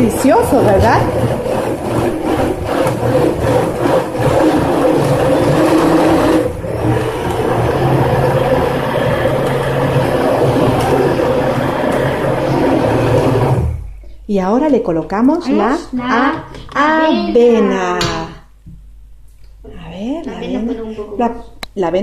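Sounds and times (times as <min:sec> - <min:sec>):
liquid churning: 0:00.0 - 0:14.0
stick blender motor hum: 0:00.0 - 0:14.0.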